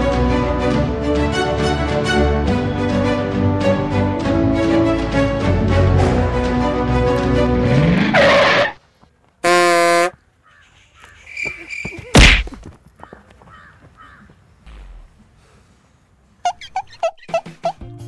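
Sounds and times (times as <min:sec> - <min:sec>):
heavy whack: 0:12.2 - 0:12.6.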